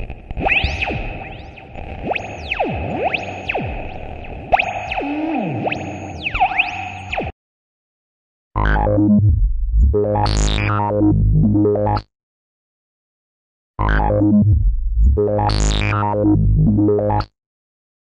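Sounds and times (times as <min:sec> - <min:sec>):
electronic synthesizer music: 0:00.0 - 0:07.3.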